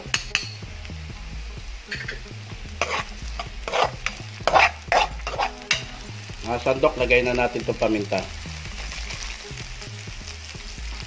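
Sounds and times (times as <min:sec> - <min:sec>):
food sizzling in oil: 0:00.0 - 0:11.0
metal spoon scraping a pan: 0:01.9 - 0:06.1.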